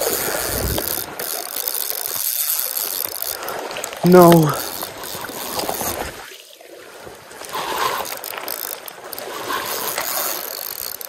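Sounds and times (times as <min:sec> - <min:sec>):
fishing reel clicking: 0:00.0 - 0:06.0, 0:07.4 - 0:11.0
river current rushing: 0:00.0 - 0:06.1.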